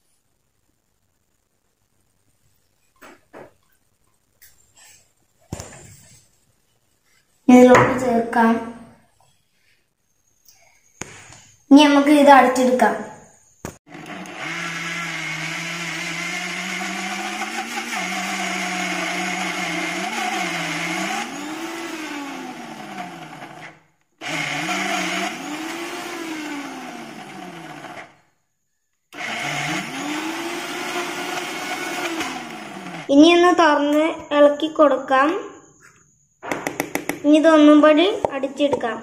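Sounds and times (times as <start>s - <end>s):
mixer grinder motor grinding: 13.9s - 28.2s, 29.2s - 33.1s.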